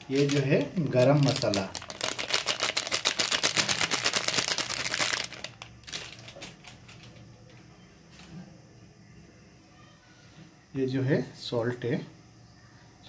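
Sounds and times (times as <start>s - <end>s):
plastic packet crinkling: 0.0s - 6.7s.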